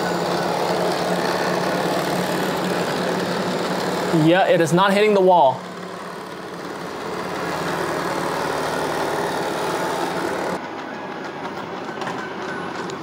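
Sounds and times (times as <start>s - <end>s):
robot vacuum humming on carpet: 0.0s - 4.6s, 5.2s - 10.6s.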